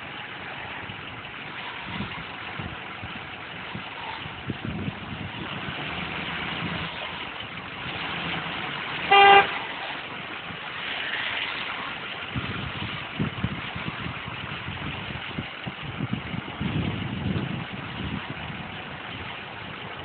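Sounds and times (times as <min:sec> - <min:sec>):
pickup truck idling: 0:00.0 - 0:20.0
vehicle horn honk: 0:09.0 - 0:09.6.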